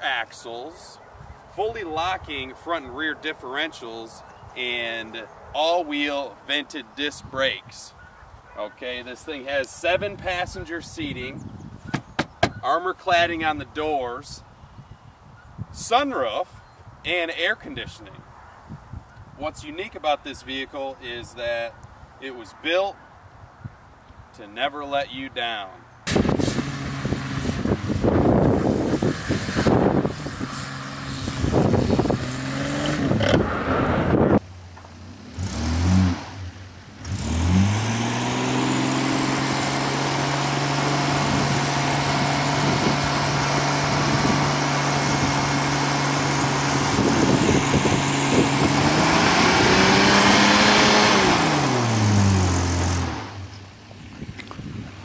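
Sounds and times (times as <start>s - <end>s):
truck engine revving: 26.1s - 34.4s, 35.0s - 53.6s.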